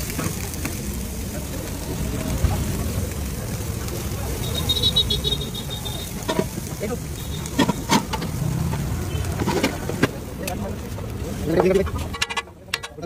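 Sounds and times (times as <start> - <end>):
metal utensils clinking: 7.5 - 10.2, 11.5 - 13.0.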